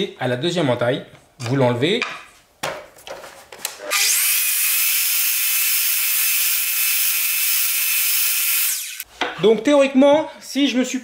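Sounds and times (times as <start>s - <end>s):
mitre saw whining: 3.9s - 9.1s.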